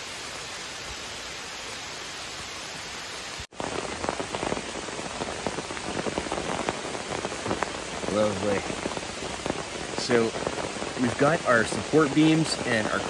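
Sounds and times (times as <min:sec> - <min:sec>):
even hiss: 0:00.0 - 0:13.0
rain pattering on a tarp: 0:03.3 - 0:13.0.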